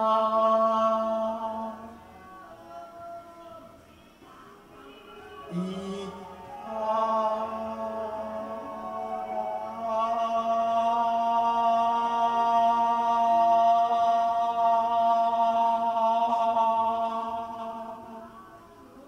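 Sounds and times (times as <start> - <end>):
sustained held music chord: 5.4 - 18.6.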